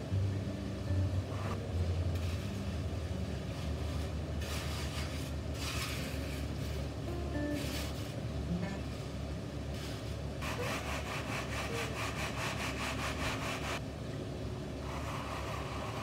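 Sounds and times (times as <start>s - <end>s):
straightedge scraping wet concrete: 4.4s - 8.1s.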